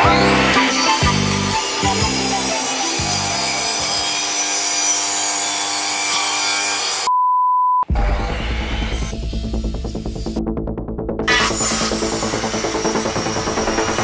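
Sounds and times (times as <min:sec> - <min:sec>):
mitre saw cutting wood: 0:00.0 - 0:07.1, 0:11.3 - 0:14.0.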